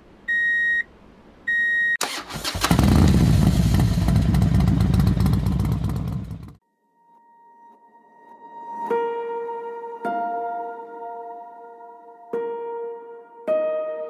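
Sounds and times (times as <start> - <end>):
electronic beep: 0.3 - 0.9
engine cranking and running: 2.0 - 6.6.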